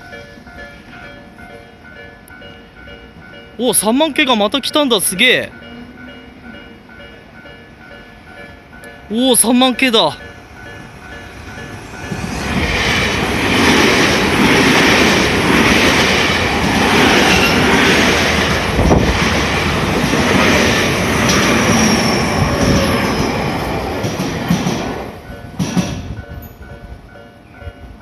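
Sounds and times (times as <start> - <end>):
level crossing warning bell: 0.0 - 12.6, 25.2 - 28.0
electric train passing: 0.0 - 28.0
high wheel squeal: 21.6 - 23.3.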